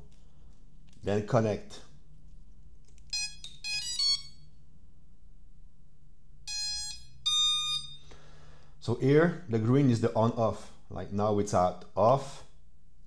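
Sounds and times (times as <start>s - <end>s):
longer electronic beeps: 3.2s - 4.4s, 6.5s - 8.0s
short rising beeps: 6.5s - 8.1s.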